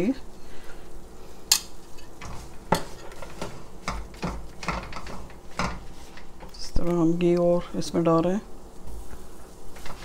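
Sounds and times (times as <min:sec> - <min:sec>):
spatula scraping wok: 0:01.8 - 0:06.5, 0:08.9 - 0:10.0.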